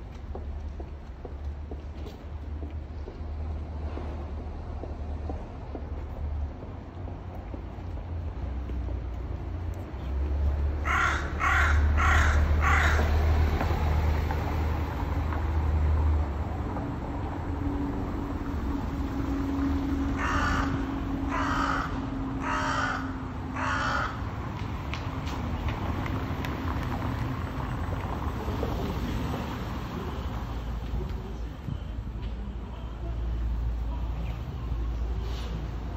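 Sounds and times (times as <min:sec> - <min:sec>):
crow cawing: 0:10.8 - 0:13.1, 0:20.2 - 0:24.3.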